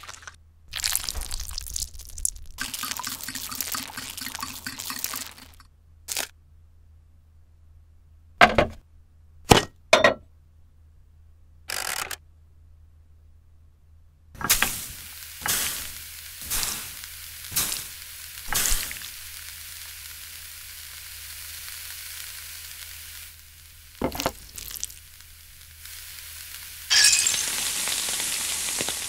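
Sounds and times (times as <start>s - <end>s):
oil sizzling in a pan: 0.0s - 6.2s, 14.4s - 29.0s.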